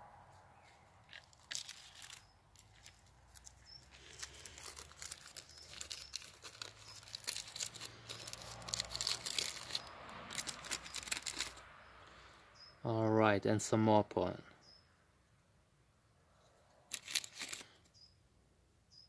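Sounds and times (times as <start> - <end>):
paper bag crinkling: 1.0 - 11.6, 16.9 - 17.8.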